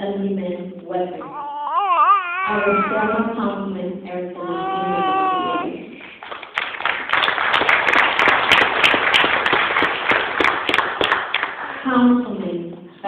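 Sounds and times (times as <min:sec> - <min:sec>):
audience applauding: 0:05.5 - 0:11.8.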